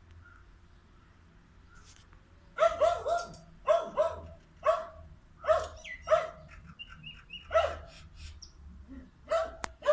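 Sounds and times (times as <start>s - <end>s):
dog barking: 2.6s - 6.4s, 7.5s - 7.9s, 9.2s - 9.9s.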